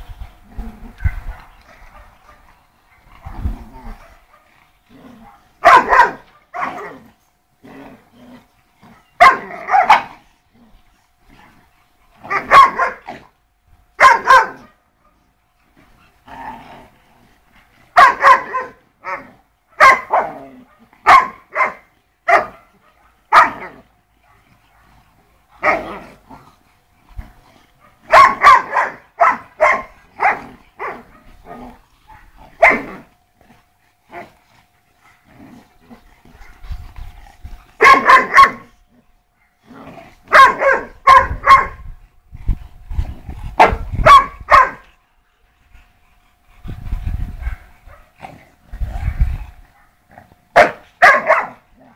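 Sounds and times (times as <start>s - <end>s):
dogs barking: 1.0s - 3.1s, 5.2s - 7.0s, 8.9s - 10.2s, 12.3s - 13.2s, 14.0s - 15.2s, 18.0s - 25.0s, 27.8s - 31.4s, 32.1s - 33.1s, 37.8s - 38.7s, 40.3s - 41.8s, 43.6s - 44.9s, 47.4s - 48.2s, 49.0s - 51.9s.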